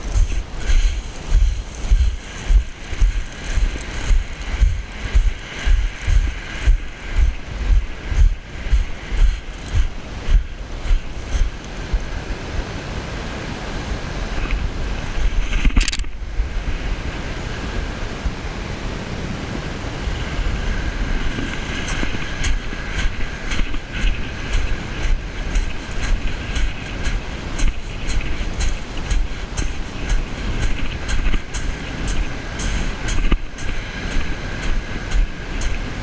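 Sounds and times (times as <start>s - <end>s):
footsteps crunching on shingle: 0.0s - 11.6s
waves washing on shingle: 0.0s - 16.1s, 18.6s - 36.0s
wind buffeting microphone: 0.0s - 36.0s.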